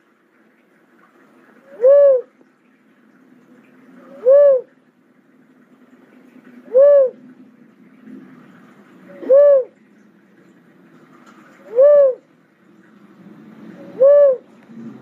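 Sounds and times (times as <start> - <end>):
dove calling: 1.7 - 2.3, 4.1 - 4.7, 6.6 - 7.2, 9.1 - 9.8, 11.6 - 12.3, 13.8 - 14.5.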